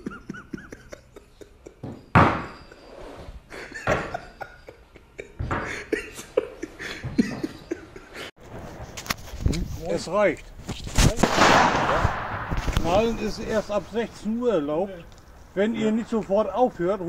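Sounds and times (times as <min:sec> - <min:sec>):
sharp echoing bangs: 0:11.1 - 0:14.2.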